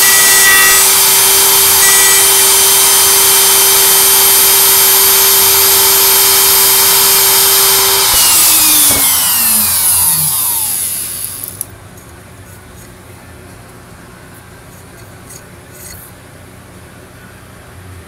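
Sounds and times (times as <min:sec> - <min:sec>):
router spindle whining: 0:00.0 - 0:11.6.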